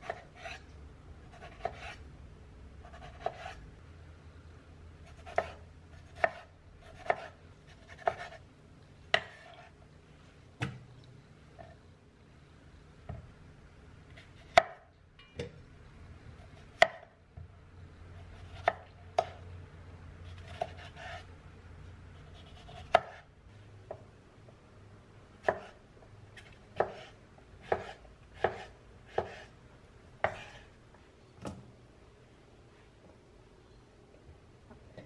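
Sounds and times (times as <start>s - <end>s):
knife chopping on cutting board: 2.9s - 3.6s, 5.2s - 8.4s, 9.1s - 9.7s, 25.4s - 25.8s, 26.8s - 29.5s, 30.2s - 30.6s.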